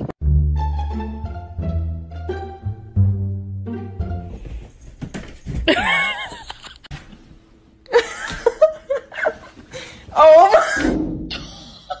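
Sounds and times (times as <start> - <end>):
people laughing: 5.7 - 6.9
people talking: 10.1 - 11.5.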